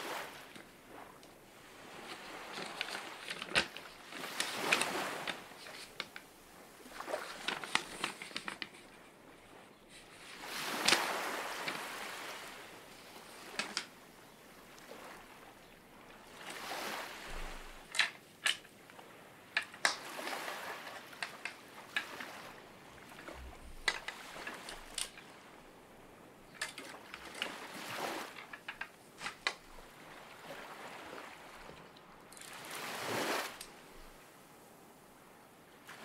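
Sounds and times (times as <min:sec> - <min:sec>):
water washing and sloshing: 0:00.0 - 0:34.2.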